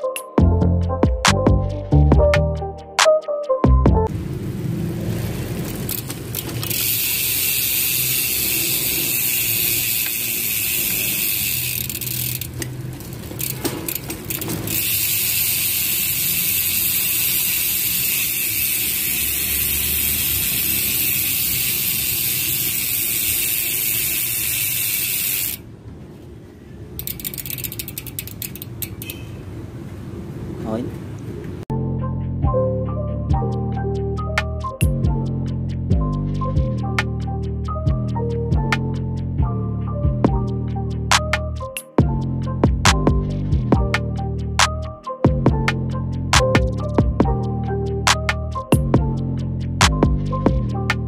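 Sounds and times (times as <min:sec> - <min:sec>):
bike freehub buzzing: 0:04.6 - 0:25.6, 0:27.0 - 0:29.4.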